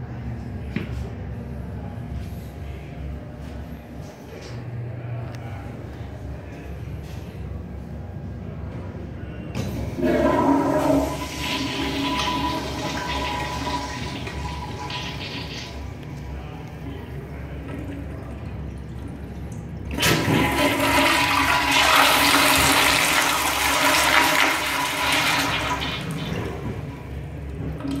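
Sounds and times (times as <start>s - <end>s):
toilet flushing: 9.6s - 16.2s, 16.8s - 28.0s.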